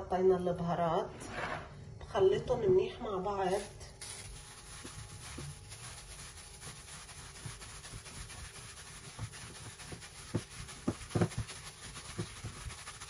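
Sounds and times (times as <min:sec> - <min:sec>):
hand kneading minced meat: 0:03.6 - 0:13.0.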